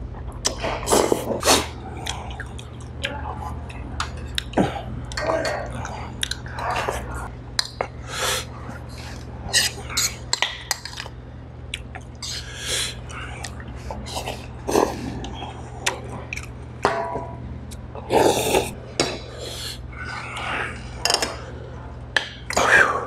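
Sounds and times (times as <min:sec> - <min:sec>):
slurping and chewing: 0:17.9 - 0:20.8.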